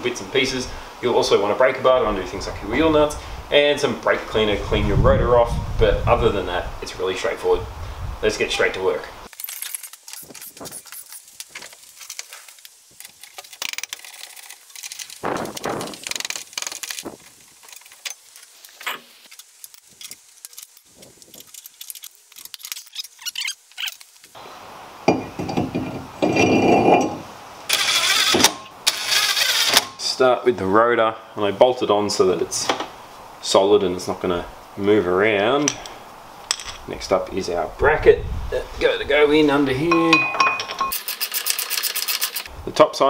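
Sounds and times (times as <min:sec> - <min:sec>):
metal tools and brake parts clinking: 0:17.6 - 0:20.8, 0:35.6 - 0:36.9, 0:39.9 - 0:42.5.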